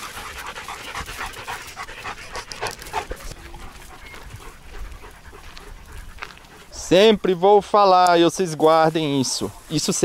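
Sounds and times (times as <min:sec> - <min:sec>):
dog panting: 0:00.0 - 0:07.3.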